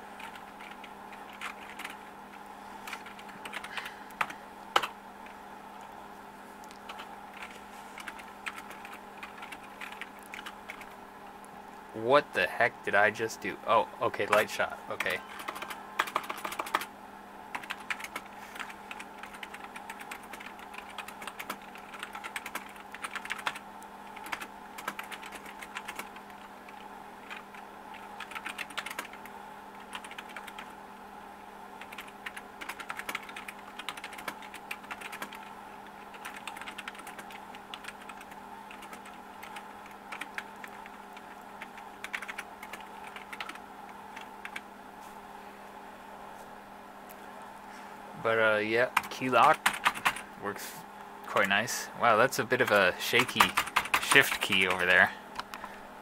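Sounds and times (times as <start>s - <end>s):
steady low hum: 0.0s - 56.0s
keyboard keys clicking: 0.2s - 2.0s, 2.9s - 4.9s, 6.6s - 10.9s, 15.4s - 16.9s, 17.5s - 23.6s, 24.2s - 30.7s, 31.8s - 35.5s, 36.1s - 43.6s, 49.0s - 50.2s, 52.6s - 54.8s.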